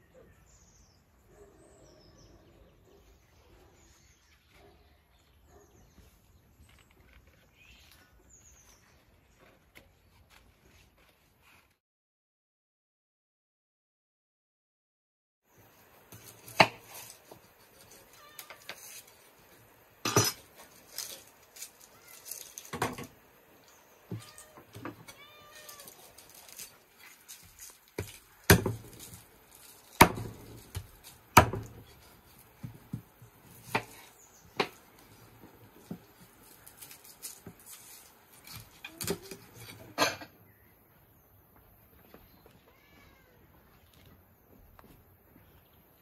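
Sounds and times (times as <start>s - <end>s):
knife chopping on wooden board: 16.1s - 17.1s, 28.0s - 32.0s.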